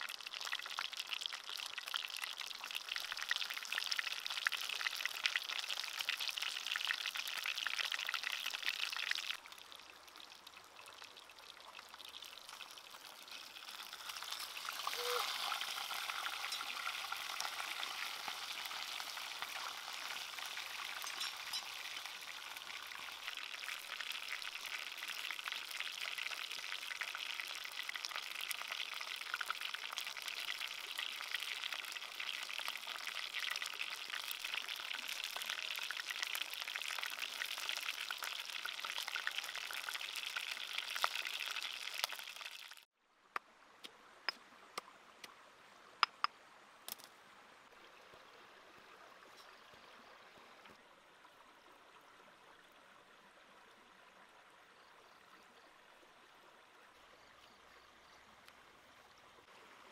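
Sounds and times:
fish sizzling in a pan: 12.0 - 42.8.

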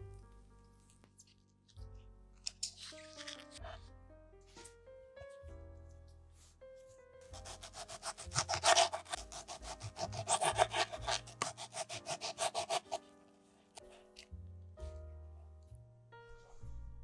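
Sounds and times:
knife sawing through tomato: 7.2 - 13.1.

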